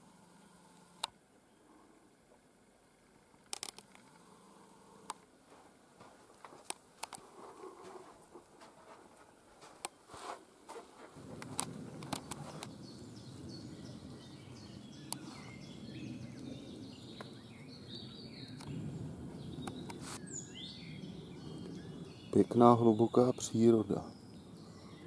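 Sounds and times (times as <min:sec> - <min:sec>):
low rushing background noise: 0:00.0 - 0:25.0
small birds chirping and singing: 0:11.0 - 0:25.0.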